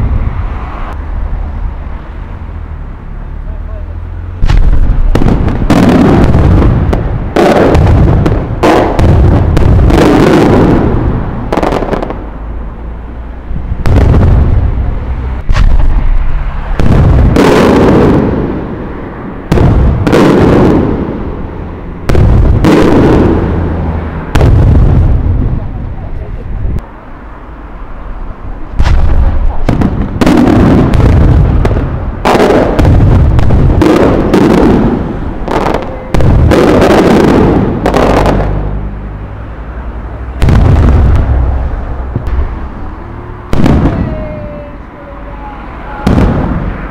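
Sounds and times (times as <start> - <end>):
firework shells bursting: 4.4 - 12.3
sharp firework bangs: 4.4 - 12.4, 13.7 - 25.8, 28.7 - 38.8, 40.3 - 45.2, 45.8 - 46.9.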